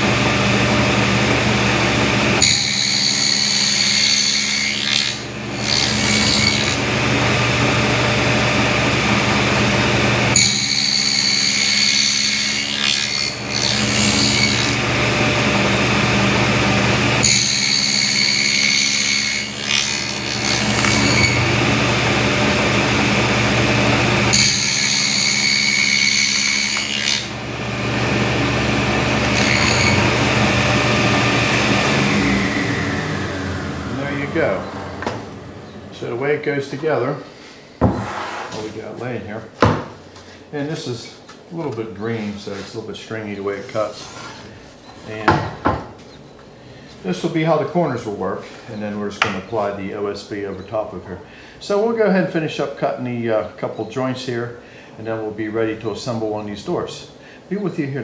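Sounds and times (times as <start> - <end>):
table saw motor hum: 0.0 - 37.2
saw blade whining in wood: 0.0 - 39.0.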